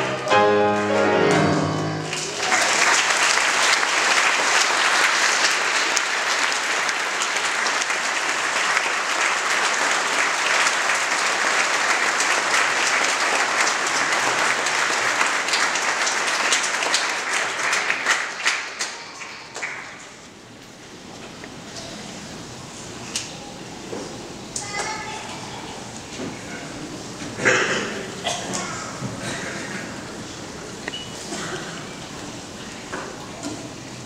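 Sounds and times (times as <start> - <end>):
audience applauding: 1.6 - 20.2.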